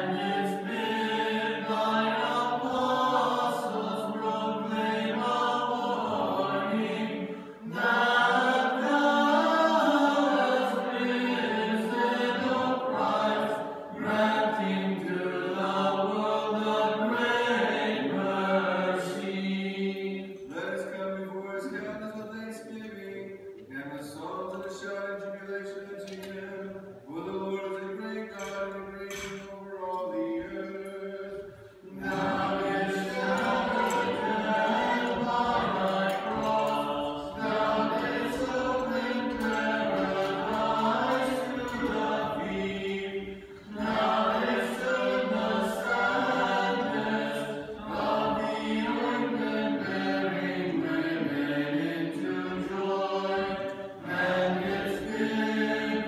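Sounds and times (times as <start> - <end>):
choir chanting a cappella: 0.0 - 21.8, 24.0 - 56.0.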